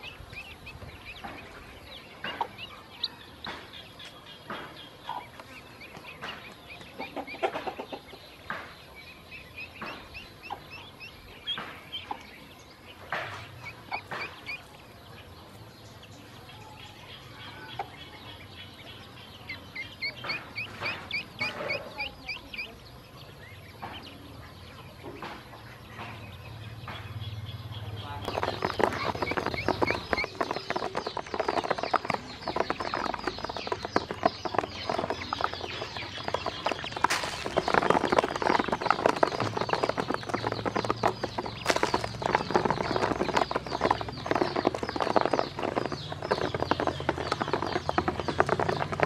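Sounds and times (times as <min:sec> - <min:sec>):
ducklings peeping: 0:00.0 - 0:49.0
rustling through grass: 0:36.5 - 0:40.2.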